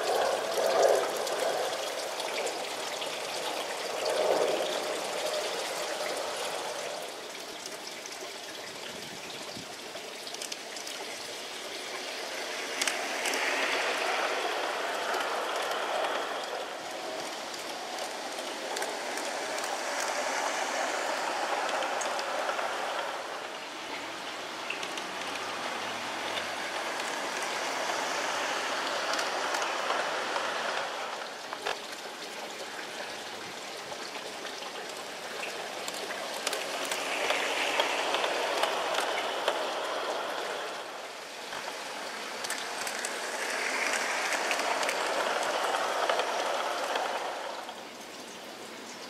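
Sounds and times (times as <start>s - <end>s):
clicks over rail joints: 8.8s - 49.0s
model train wheels rattling: 10.3s - 33.2s, 34.2s - 48.4s.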